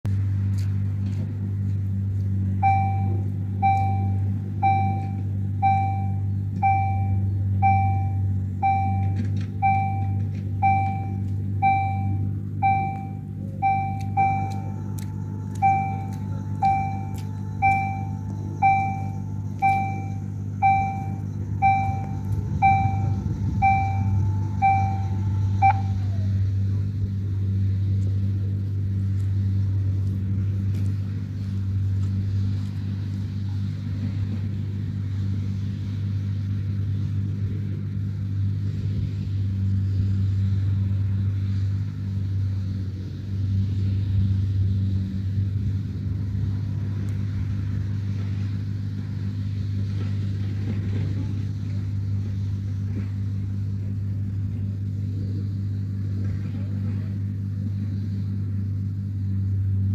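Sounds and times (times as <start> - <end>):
barrier motor whine: 0.1 - 59.9
steady low hum: 0.1 - 59.9
level crossing warning bell: 2.6 - 26.3.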